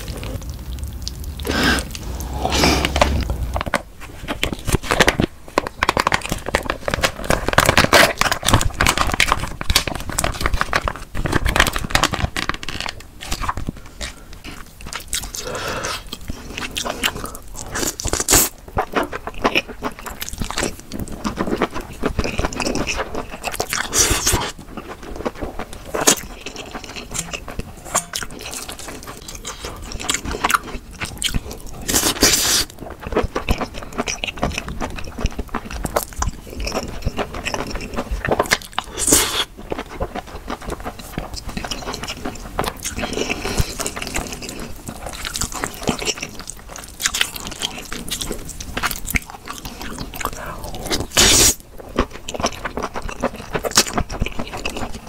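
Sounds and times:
wet slurping and chewing: 0.0 - 5.1, 11.8 - 55.0
chopsticks scraping metal bowl: 27.0 - 28.6.

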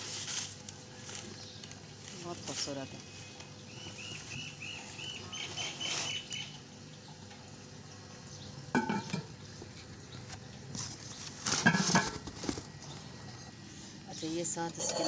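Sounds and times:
bird chirping: 3.0 - 7.1.

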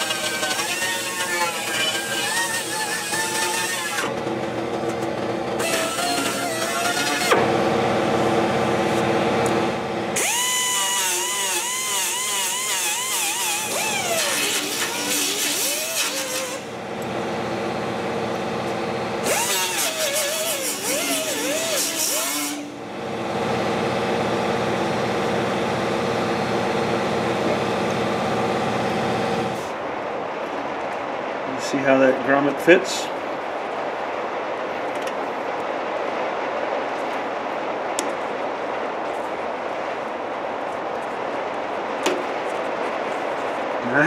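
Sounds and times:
grinder grinding metal: 0.0 - 4.2, 5.2 - 7.6, 10.2 - 16.8, 18.8 - 22.8
pneumatic die grinder running: 0.0 - 29.7.

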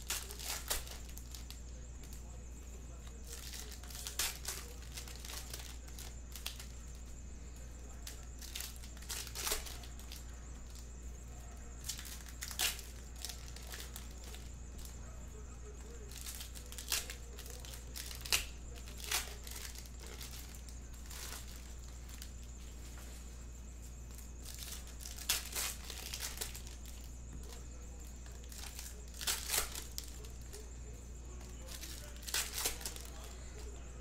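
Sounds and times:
plastic wrappers crinkling and tearing: 0.0 - 2.2, 3.0 - 7.1, 8.0 - 10.8, 11.8 - 14.9, 15.8 - 22.6, 24.1 - 30.7, 31.4 - 33.8
low steady hum: 0.0 - 34.0.

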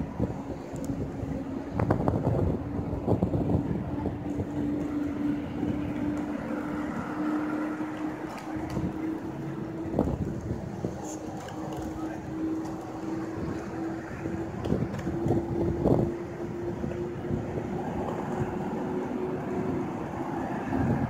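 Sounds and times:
jet airliners droning: 0.0 - 21.0
wind buffeting microphone: 0.0 - 21.0.

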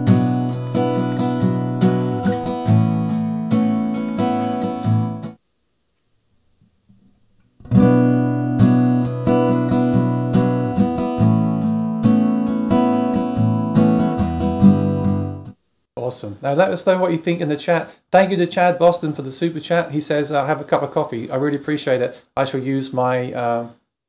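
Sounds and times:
acoustic guitar playing: 0.0 - 5.4, 7.6 - 15.6.

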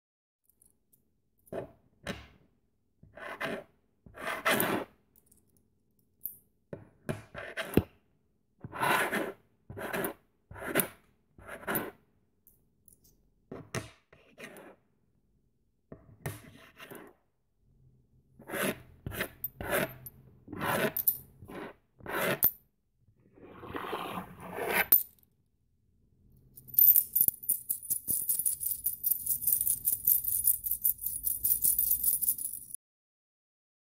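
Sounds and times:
metal coins clinking: 26.6 - 32.8
many coins clattering rapidly: 26.8 - 32.8.

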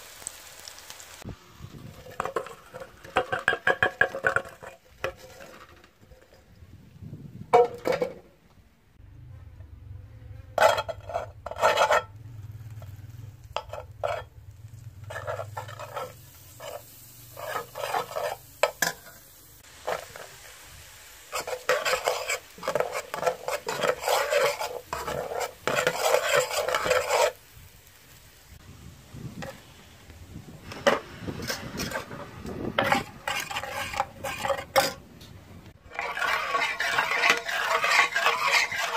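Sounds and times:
metal spoon scraping a pot: 2.0 - 6.4, 10.6 - 12.2, 13.5 - 14.3, 15.0 - 19.2, 21.3 - 27.4, 30.8 - 35.0, 35.8 - 38.9.

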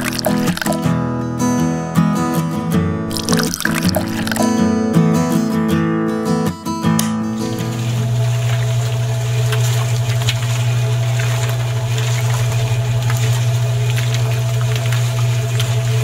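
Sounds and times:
toy mixer motor humming: 0.0 - 0.8.

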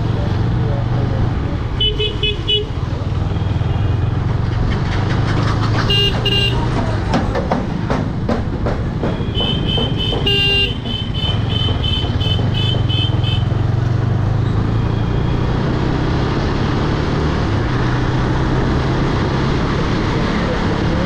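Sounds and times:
motorcycle engine running: 0.0 - 16.0
vehicle horn honking: 1.8 - 2.8, 5.9 - 6.7, 9.1 - 13.5.

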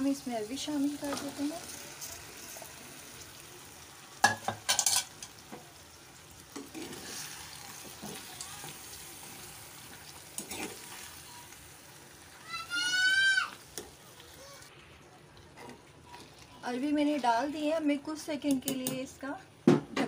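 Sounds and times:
oil sizzling in a pot: 0.0 - 19.2
vegetables clattering against pot: 4.2 - 5.4.

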